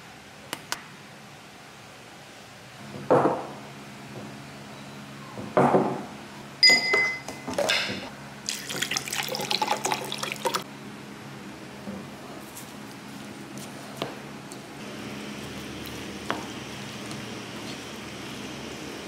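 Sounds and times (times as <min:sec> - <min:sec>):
glass clink: 0:06.6 - 0:08.0
liquid pouring into glass: 0:08.4 - 0:10.6.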